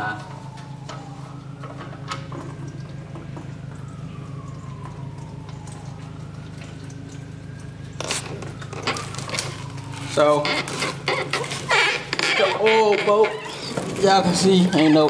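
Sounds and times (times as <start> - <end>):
faint falling and rising tone: 0.0 - 10.4
oil pouring into drain pan: 0.8 - 15.0.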